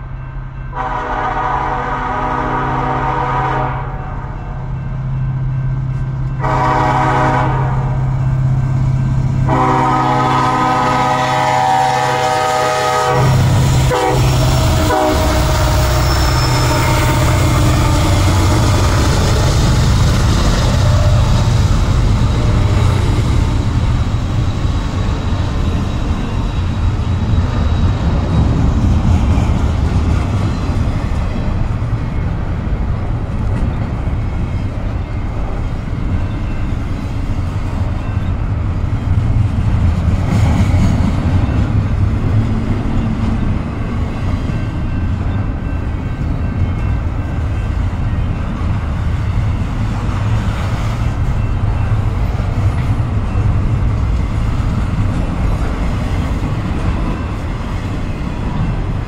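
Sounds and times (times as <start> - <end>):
diesel locomotive engines running: 0.0 - 59.0
train air horn blasts: 0.7 - 4.2, 6.4 - 8.0, 9.5 - 19.5
freight cars rumbling and clattering: 13.4 - 59.0.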